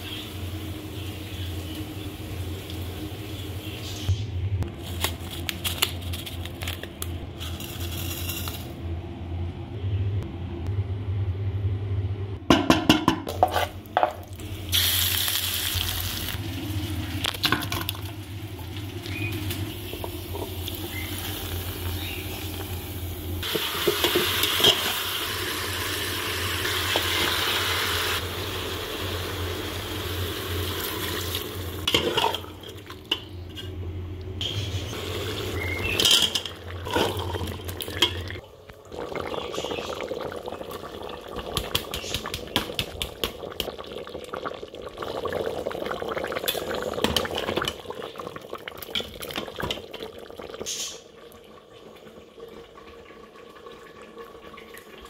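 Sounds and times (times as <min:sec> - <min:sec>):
sizzling and bubbling: 0:00.0 - 0:08.9, 0:12.4 - 0:55.0
steady low hum: 0:00.2 - 0:14.6
spoon scraping metal pot: 0:13.3 - 0:13.8.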